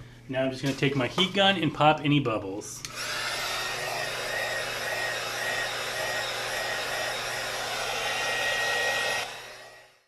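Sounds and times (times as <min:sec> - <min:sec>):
heat gun blowing hot air: 0:02.9 - 0:10.0.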